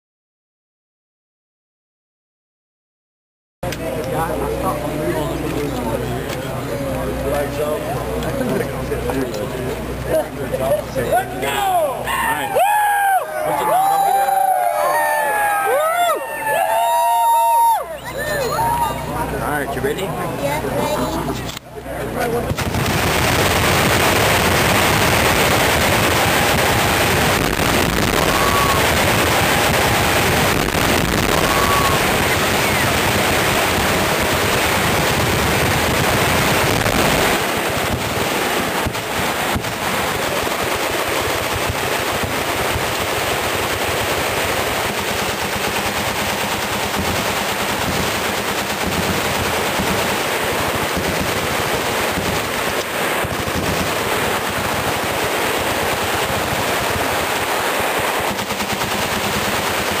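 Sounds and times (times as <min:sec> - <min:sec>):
machine guns firing: 0:22.4 - 1:00.0.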